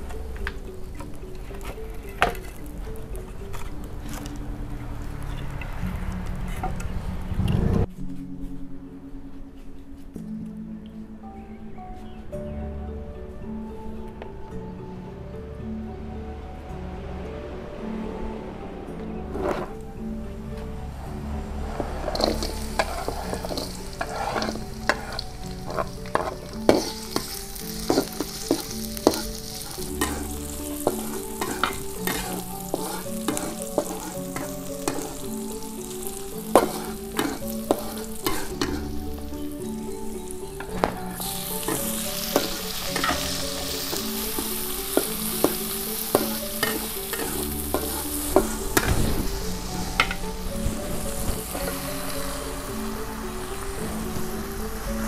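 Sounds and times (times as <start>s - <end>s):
metal spatula scraping a wok: 1.3s - 4.4s, 19.3s - 19.9s, 21.8s - 39.6s, 41.2s - 52.1s
food sizzling in a wok: 21.6s - 55.0s.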